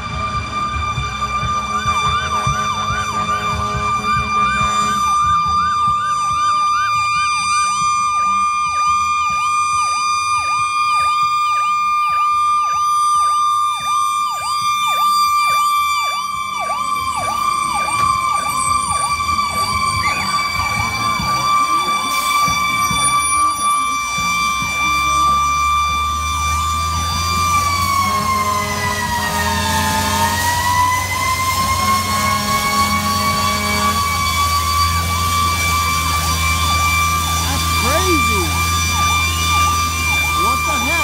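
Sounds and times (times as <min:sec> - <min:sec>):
fire engine siren: 0:00.0 - 0:41.0
steady high tone: 0:35.4 - 0:41.0.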